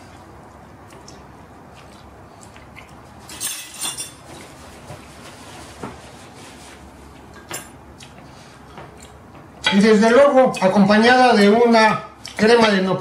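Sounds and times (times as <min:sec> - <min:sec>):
paper napkin rustling: 0:04.2 - 0:07.0.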